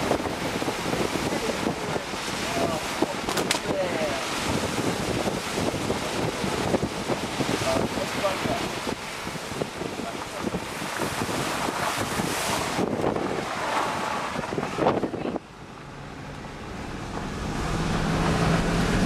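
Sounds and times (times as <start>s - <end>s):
wind rushing over microphone: 0.0s - 19.0s
road noise in car cabin: 7.8s - 19.0s
low hum of car engine: 10.9s - 19.0s.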